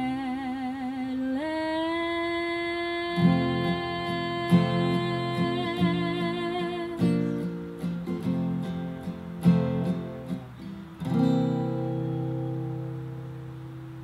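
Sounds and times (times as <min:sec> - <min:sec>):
woman singing: 0:00.0 - 0:08.6
strummed guitar chords: 0:03.2 - 0:14.0.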